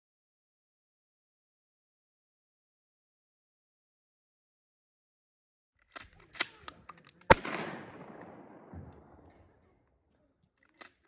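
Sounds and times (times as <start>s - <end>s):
handgun shot echoing: 6.4s - 9.4s.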